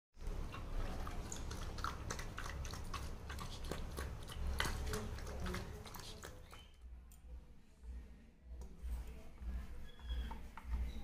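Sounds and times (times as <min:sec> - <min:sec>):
puppy lapping and chewing food: 0:00.2 - 0:06.8.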